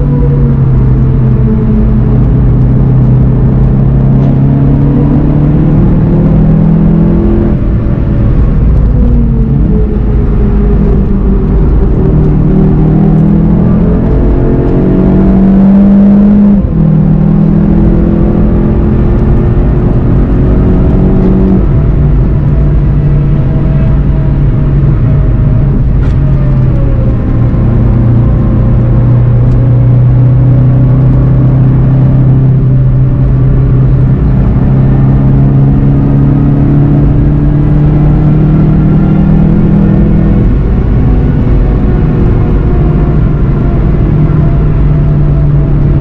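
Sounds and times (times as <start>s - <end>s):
car engine accelerating: 0.0s - 46.0s
wind noise: 0.0s - 46.0s.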